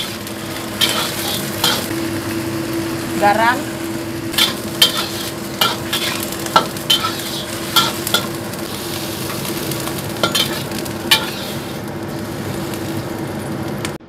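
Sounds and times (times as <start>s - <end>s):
greens sizzling in a wok: 0.0s - 14.0s
steady low hum: 0.0s - 14.0s
metal spatula clanking on wok: 0.8s - 1.9s, 4.4s - 8.4s, 9.3s - 11.6s.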